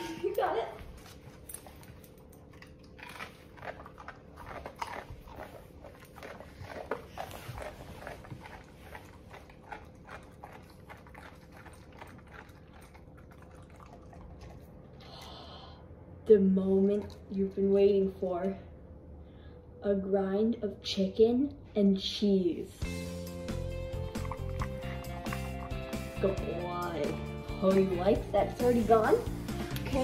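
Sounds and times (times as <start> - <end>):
dog crunching carrot: 0.9 - 14.9, 23.0 - 30.0.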